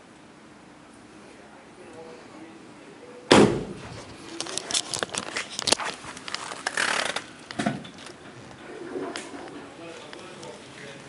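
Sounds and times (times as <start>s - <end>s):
car door slamming shut: 3.3s - 3.8s
clicks and rustling handling: 3.8s - 11.0s.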